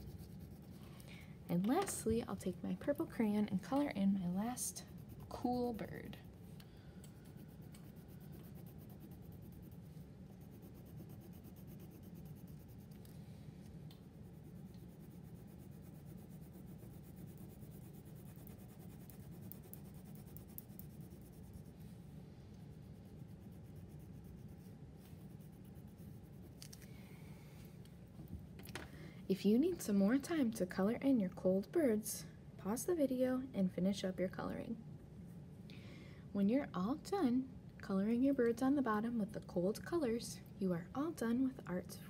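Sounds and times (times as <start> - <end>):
crayon scribbling on paper: 0.0 - 0.8, 7.3 - 13.0, 14.3 - 21.8, 22.9 - 26.6.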